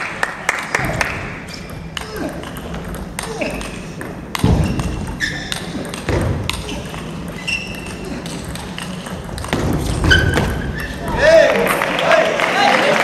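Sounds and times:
table tennis ball clicking: 0:01.5 - 0:09.7.

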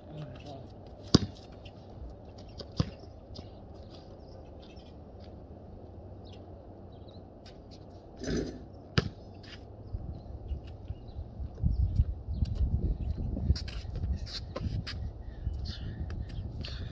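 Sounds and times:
low outdoor rumble: 0:00.0 - 0:16.9
basketball bouncing on concrete: 0:01.0 - 0:01.5, 0:02.6 - 0:03.0, 0:08.2 - 0:09.2.

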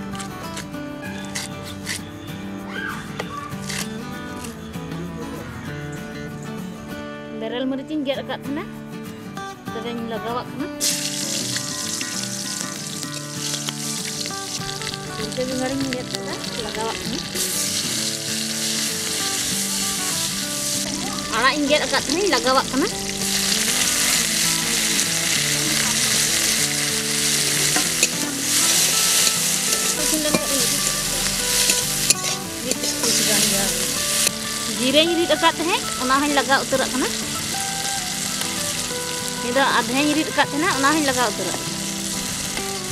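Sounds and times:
vegetables sizzling in hot oil: 0:10.8 - 0:42.9.

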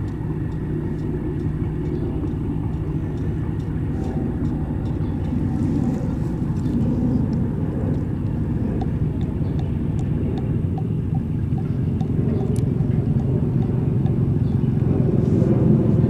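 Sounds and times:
ferry engines low rumble: 0:00.0 - 0:16.0.

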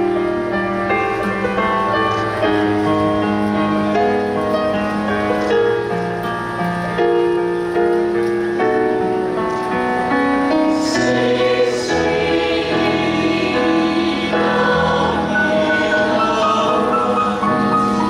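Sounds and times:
piano accompaniment: 0:00.0 - 0:18.0
choir singing sustained chords: 0:10.1 - 0:18.0.

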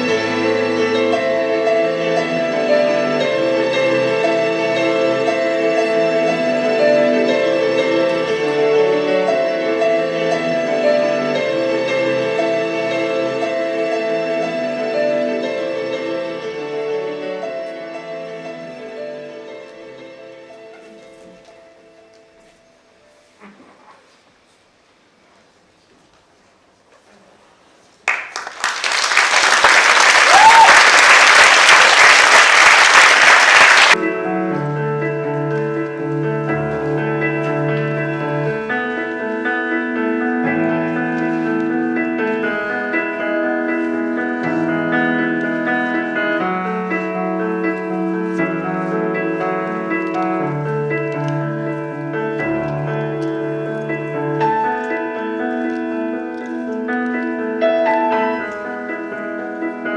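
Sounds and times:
slow piano music: 0:00.0 - 0:23.6, 0:29.1 - 0:59.9
audience applause: 0:28.1 - 0:34.0.

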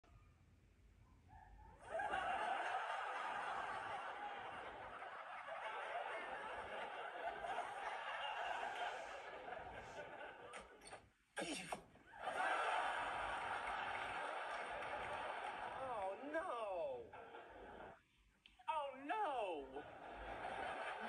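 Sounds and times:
studio audience laughing: 0:01.8 - 0:11.1, 0:12.0 - 0:18.1, 0:19.7 - 0:21.0.

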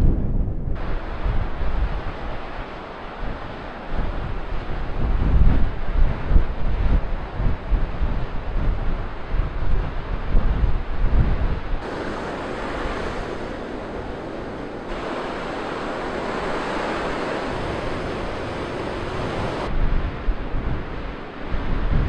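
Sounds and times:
surf breaking on sandy beach: 0:11.8 - 0:19.7.

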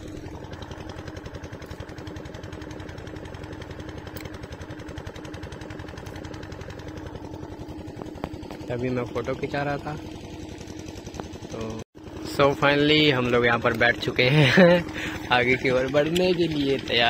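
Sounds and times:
motor boat engine running: 0:00.0 - 0:17.0.

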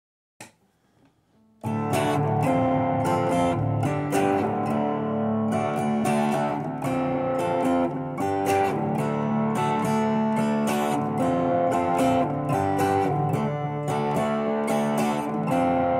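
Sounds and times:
electric guitar strumming chords: 0:01.6 - 0:15.9.

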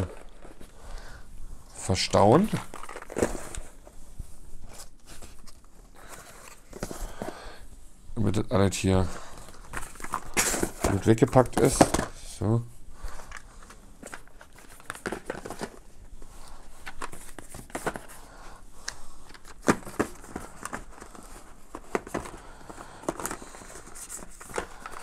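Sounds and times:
cardboard boxes rustling and knocking: 0:02.4 - 0:03.9, 0:04.7 - 0:07.4, 0:09.4 - 0:12.2, 0:13.6 - 0:15.9, 0:16.7 - 0:18.2, 0:19.4 - 0:25.0.

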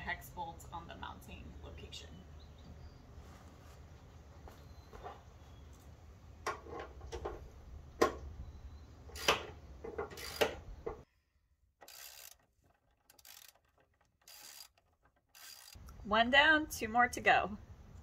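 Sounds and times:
ratchet wrench clicking: 0:09.2 - 0:09.5, 0:10.1 - 0:10.6, 0:11.8 - 0:15.9.

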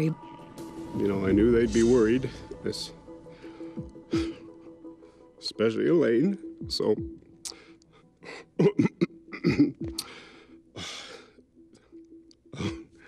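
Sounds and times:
man breathing: 0:03.1 - 0:05.4, 0:10.0 - 0:12.0
man clearing throat: 0:08.6 - 0:10.0.

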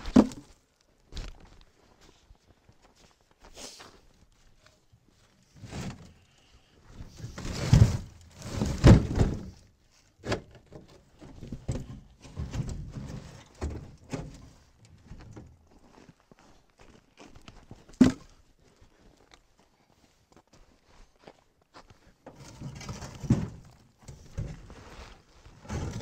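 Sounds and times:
logs thudding and scraping: 0:00.0 - 0:01.4, 0:05.2 - 0:06.2, 0:06.9 - 0:15.6, 0:17.8 - 0:18.4, 0:22.2 - 0:26.0
logs knocking in metal trailer: 0:07.4 - 0:09.6, 0:25.6 - 0:26.0.

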